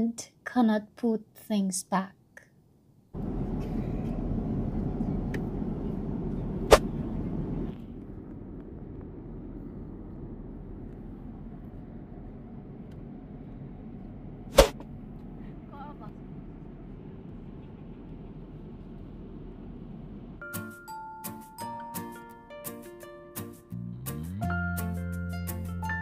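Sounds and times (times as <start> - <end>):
airliner cabin noise: 3.2 - 20.4.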